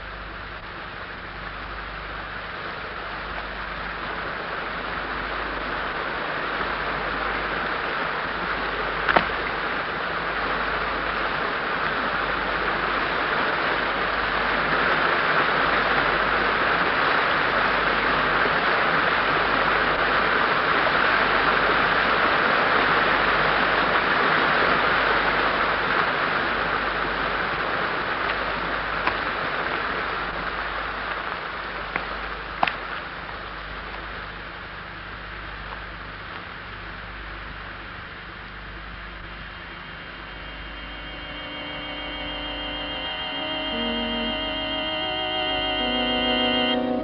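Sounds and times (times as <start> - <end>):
water rushing in cave: 1.9 - 39.1.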